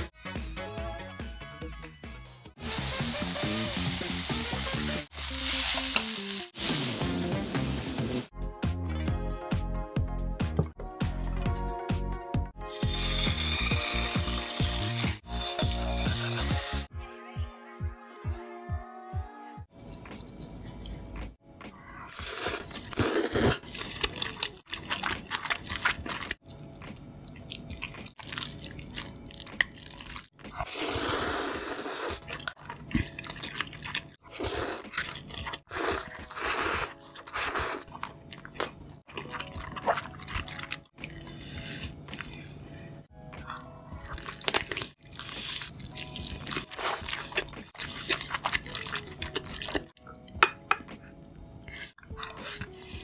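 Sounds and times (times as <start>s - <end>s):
wet chewing: 19.7s - 21.4s, 22.1s - 31.2s, 31.8s - 53.0s
slurping noodles: 22.0s - 26.4s, 29.7s - 38.1s, 39.1s - 42.6s, 44.0s - 50.0s.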